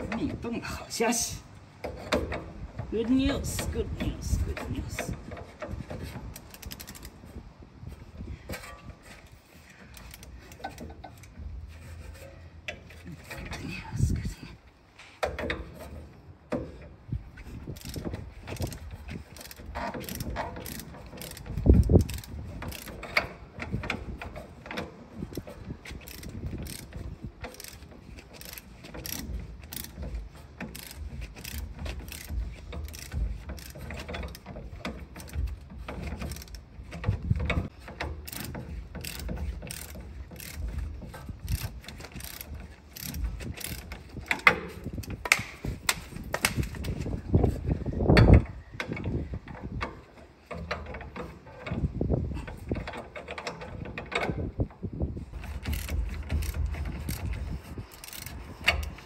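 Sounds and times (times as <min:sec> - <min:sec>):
ratchet wrench clicking: 0:03.4 - 0:07.2, 0:09.9 - 0:11.3, 0:17.4 - 0:49.8, 0:55.3 - 0:59.0.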